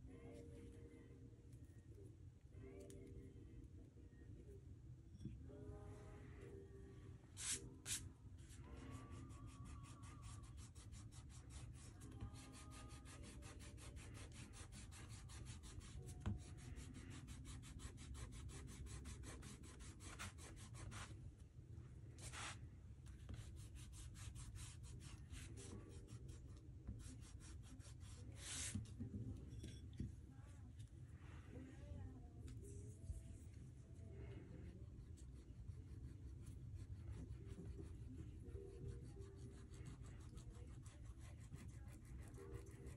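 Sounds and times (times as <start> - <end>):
eraser scratching on paper: 9.6 - 21.1.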